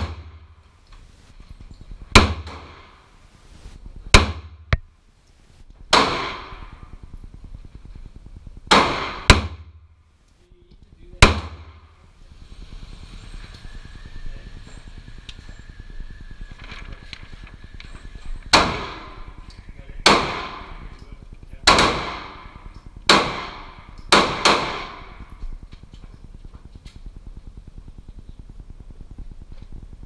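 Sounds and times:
pistol shots echoing: 0:05.9 - 0:06.7, 0:08.7 - 0:09.6, 0:20.0 - 0:20.9, 0:21.6 - 0:25.2
electric target carrier whine: 0:11.9 - 0:20.0.

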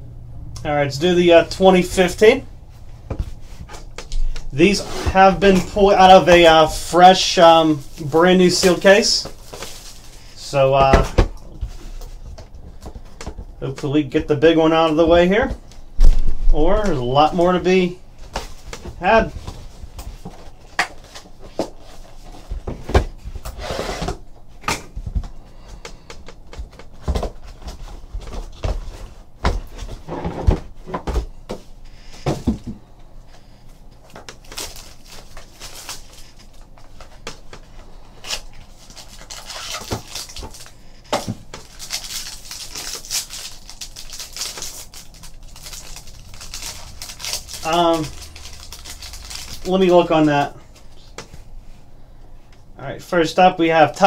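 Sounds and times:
foil pack crinkling: 0:04.6 - 0:10.6, 0:34.0 - 0:51.1.

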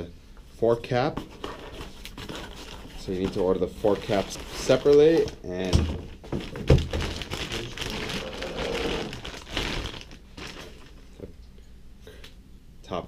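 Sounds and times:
plastic wrapping crinkling: 0:01.8 - 0:11.3.

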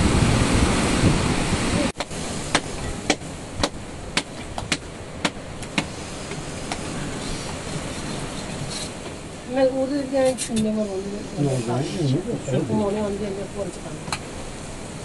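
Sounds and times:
wind-like noise: 0:00.0 - 0:15.0
sharp knocks: 0:02.0 - 0:05.9.

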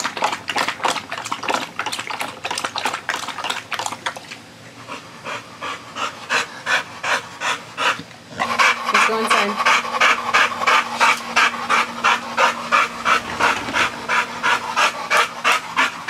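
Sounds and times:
dog lapping water: 0:00.0 - 0:16.0
dog panting: 0:04.8 - 0:16.0.

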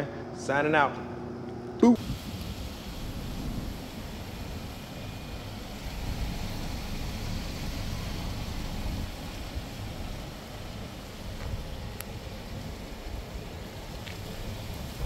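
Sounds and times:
wind buffeting microphone: 0:02.0 - 0:15.0.

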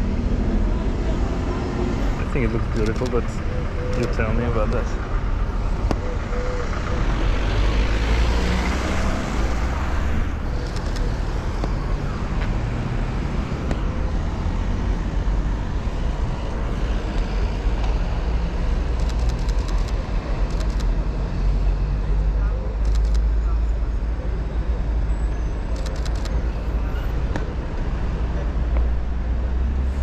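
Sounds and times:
vehicle passing: 0:00.0 - 0:22.0
street traffic noise: 0:00.0 - 0:30.0.

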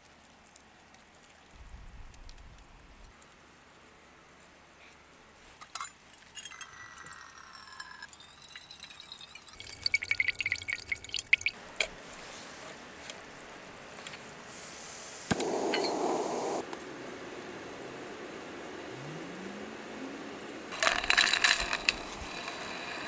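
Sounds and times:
water trickling into metal kettle: 0:06.4 - 0:11.6.

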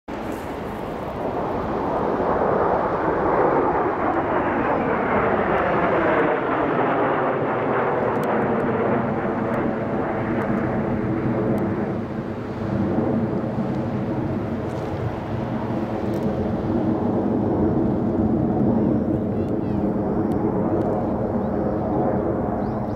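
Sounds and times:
jet aircraft roar: 0:00.1 - 0:22.9.

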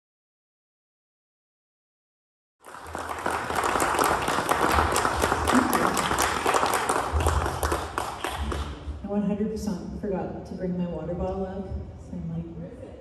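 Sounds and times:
audience applauding: 0:02.6 - 0:08.8.

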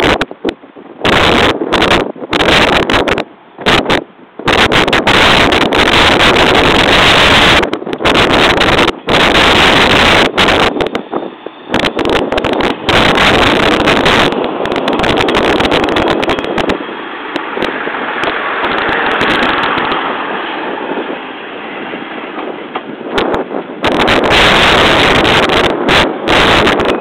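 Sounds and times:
diesel railcar engine: 0:00.0 - 0:27.0
wind buffeting microphone: 0:00.0 - 0:27.0.

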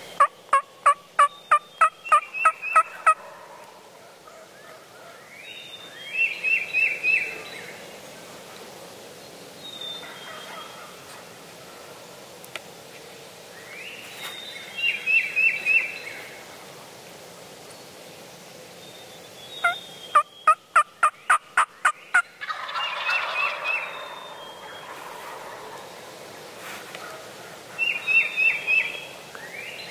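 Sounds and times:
turkeys gobbling: 0:00.0 - 0:05.2, 0:20.5 - 0:26.0
turkey yelps: 0:02.7 - 0:03.6, 0:22.4 - 0:24.1.

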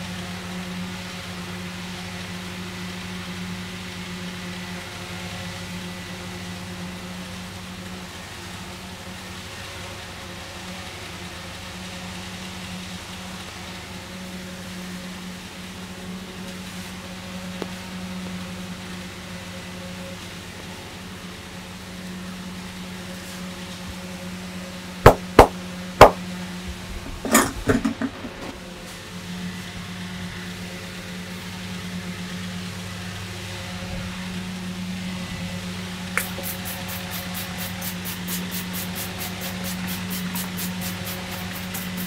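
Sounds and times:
hands smacking head: 0:25.1 - 0:26.2.

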